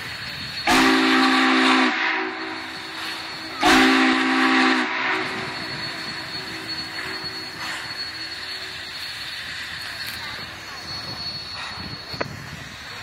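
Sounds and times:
steam locomotive chime whistle: 0:00.0 - 0:12.8.

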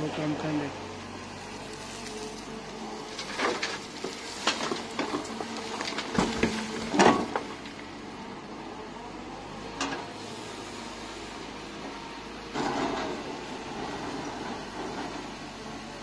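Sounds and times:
excavator engine hum: 0:00.0 - 0:16.0
dirt and stones clattering: 0:01.6 - 0:07.8.

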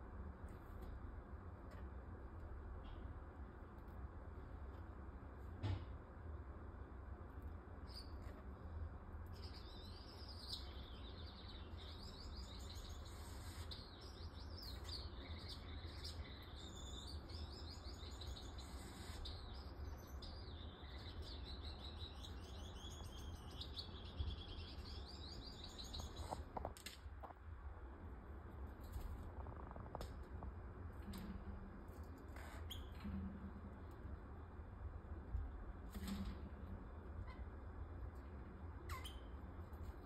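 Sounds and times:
steady low hum: 0:00.0 - 0:40.0
parakeets twittering: 0:38.8 - 0:39.4.

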